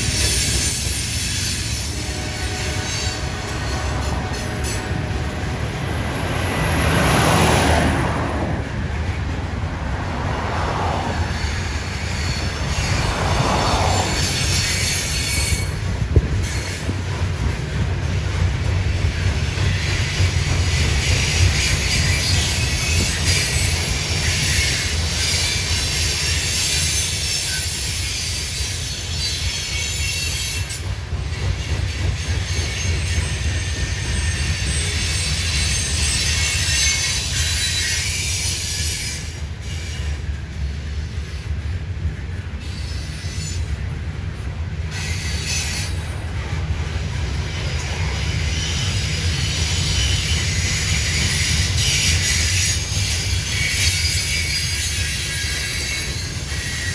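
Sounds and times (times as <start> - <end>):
high-pitched wheel squeal: 0.0 - 5.4, 10.9 - 16.9, 19.8 - 41.6, 44.9 - 46.1, 47.0 - 56.9
train wheels rumbling on rail: 0.0 - 56.9
truck passing: 4.8 - 14.6.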